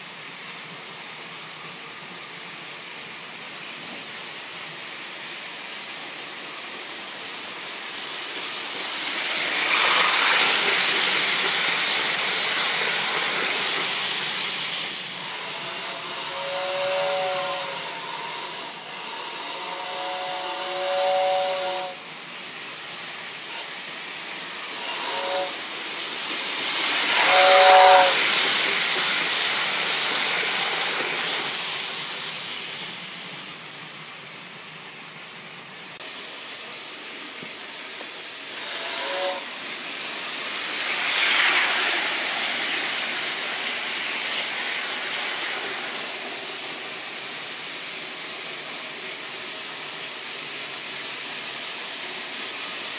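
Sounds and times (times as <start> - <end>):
model train wheels and motors: 0.0 - 52.9
model train horn chord: 15.2 - 22.0, 24.8 - 25.6, 27.1 - 28.2, 38.6 - 39.6.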